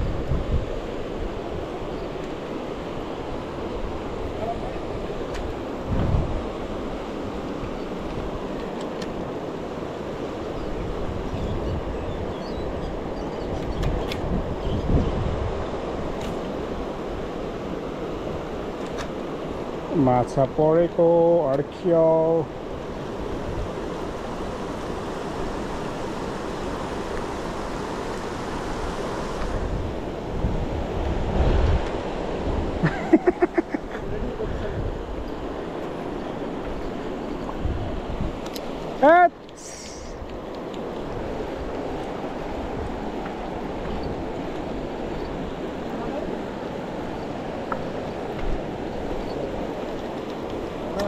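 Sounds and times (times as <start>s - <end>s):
wind buffeting microphone: 0.0s - 20.0s, 22.5s - 51.0s
rushing river water: 0.0s - 51.0s.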